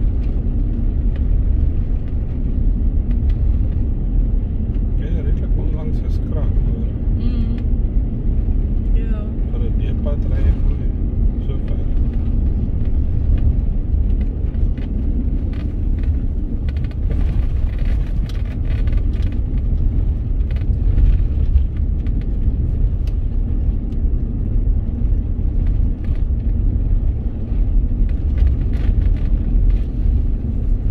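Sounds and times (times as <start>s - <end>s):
gravel ticks and rattles: 0.0s - 7.0s, 7.6s - 30.9s
vehicle rumbling on gravel: 0.0s - 30.9s.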